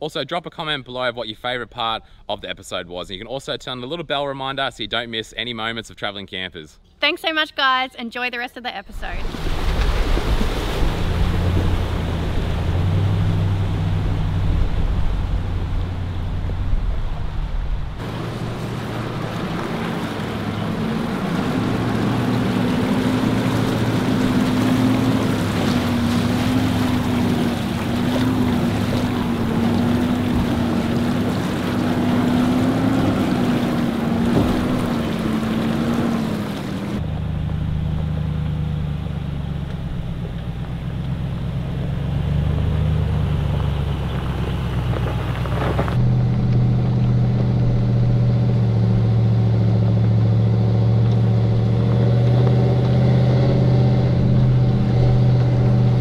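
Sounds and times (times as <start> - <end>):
water splashing around wheels: 9.0 - 56.0
vehicle engine running: 10.9 - 56.0.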